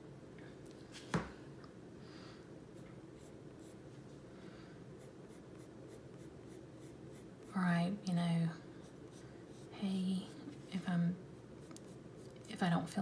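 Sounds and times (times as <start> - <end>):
colored pencil scratching on paper: 5.0 - 7.6, 8.8 - 10.3.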